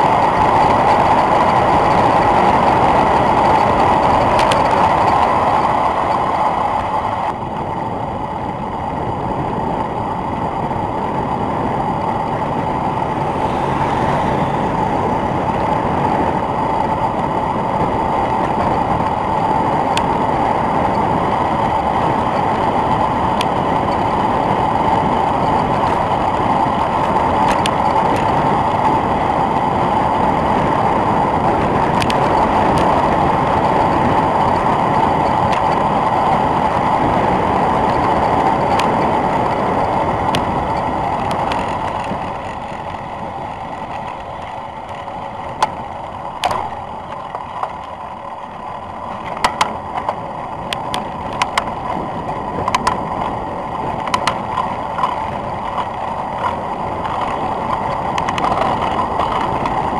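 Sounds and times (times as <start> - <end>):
wind and tyre rush: 0.0 - 59.9
sharp clicks and knocks: 43.8 - 48.0, 49.1 - 52.0, 52.6 - 59.8.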